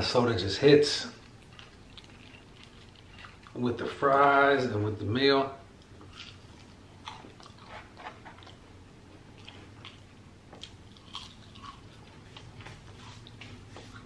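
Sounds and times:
person chewing crispy fries: 1.2s - 3.6s, 5.8s - 8.7s, 9.3s - 14.0s.

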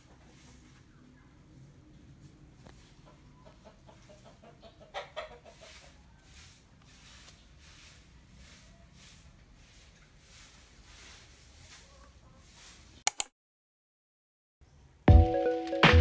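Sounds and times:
chicken clucking: 0.0s - 7.4s.

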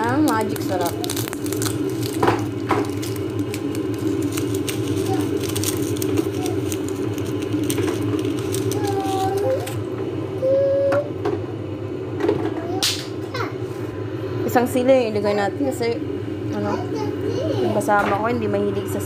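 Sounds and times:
soup boiling in a pot: 0.0s - 10.8s
steady low hum: 0.0s - 19.0s.

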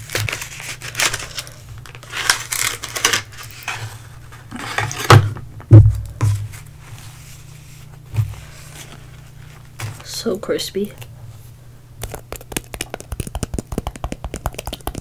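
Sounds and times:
paper sleeve crinkling: 0.0s - 5.0s
heavy thumps on table: 5.1s - 6.6s.

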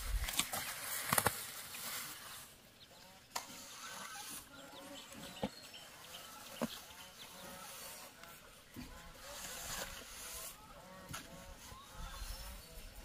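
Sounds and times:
trowel scraping wet mortar: 8.8s - 12.7s.

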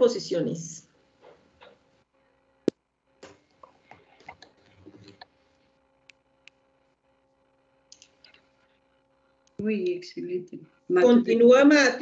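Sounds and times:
faint steady hum: 0.0s - 12.0s
computer mouse clicks: 7.9s - 8.4s.

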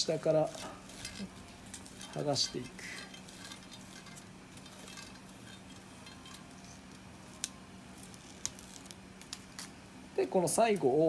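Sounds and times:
paper backing crinkling when peeled: 6.4s - 9.8s.

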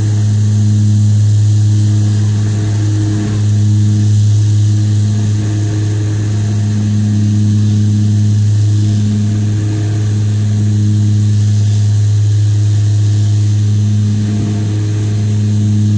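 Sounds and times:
low propeller drone: 0.0s - 15.9s.

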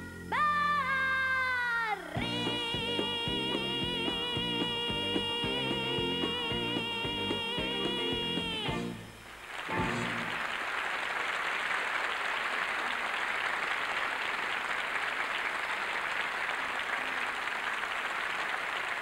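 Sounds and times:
studio audience applauding: 9.3s - 19.0s.

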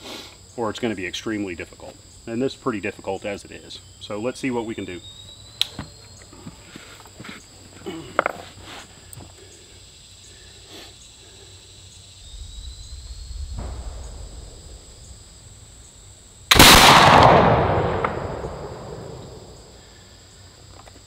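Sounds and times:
gunshot echoing: 13.5s - 15.6s, 16.5s - 19.8s.

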